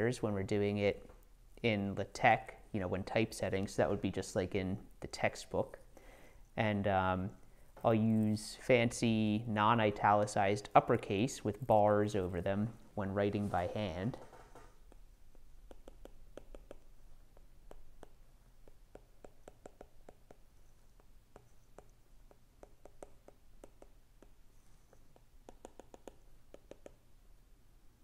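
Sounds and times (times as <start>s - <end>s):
stylus tapping on glass screen: 14.9s - 27.0s.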